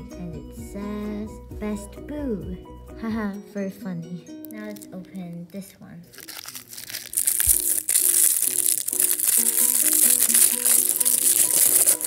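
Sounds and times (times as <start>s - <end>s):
background music: 0.0s - 12.0s
plastic wrapper crackling: 4.4s - 12.0s.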